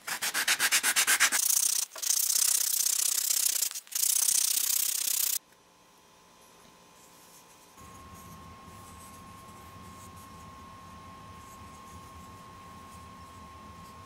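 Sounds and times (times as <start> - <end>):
wood rubbing on sandpaper: 0.0 - 5.4.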